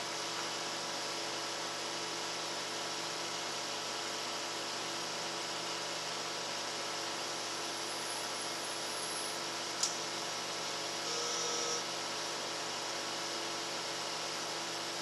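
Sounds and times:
electrical hum: 0.0s - 15.0s
computer hardware hiss: 7.2s - 10.1s.

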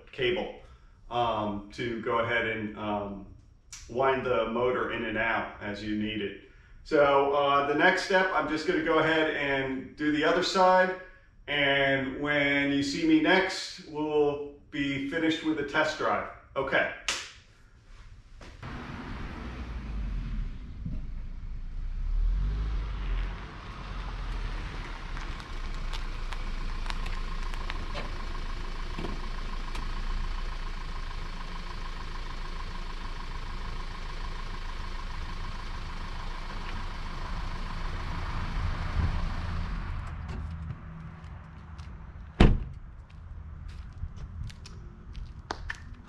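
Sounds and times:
car engine idling: 18.6s - 45.4s.

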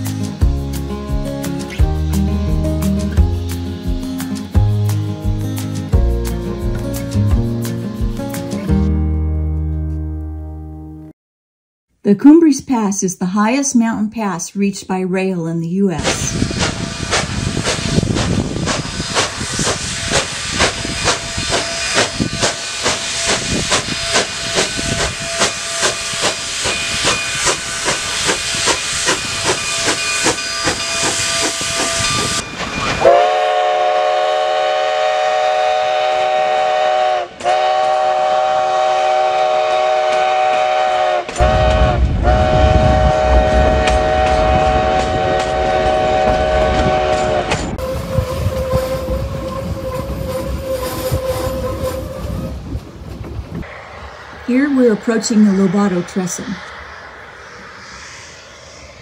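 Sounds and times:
steam locomotive exhaust chuffs: 0.0s - 8.4s, 16.0s - 59.0s
train rumble: 0.0s - 8.8s, 15.9s - 59.0s
steam whistle blasts: 16.0s - 52.8s
hissing steam: 16.0s - 59.0s.

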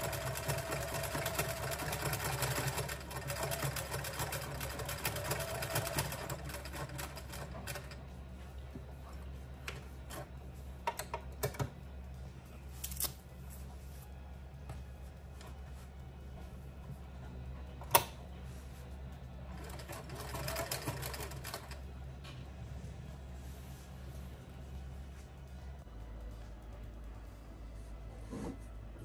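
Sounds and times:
sewing machine stitching: 0.0s - 8.0s, 19.6s - 21.8s.

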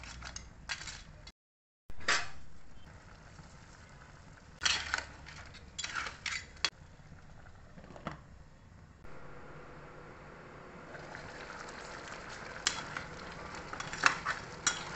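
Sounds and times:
metal spoon scraping a pan: 4.6s - 6.8s, 12.6s - 14.9s.

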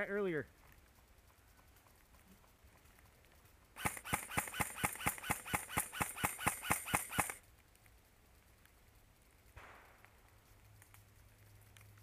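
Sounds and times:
airsoft rifle rapid shots: 3.8s - 7.4s.

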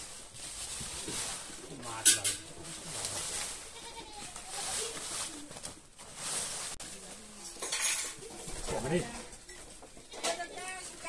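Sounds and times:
leafy branches rustling: 0.0s - 7.6s.

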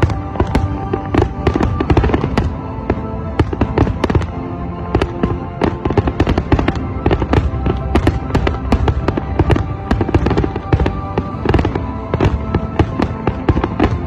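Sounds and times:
music playing: 0.0s - 14.0s.

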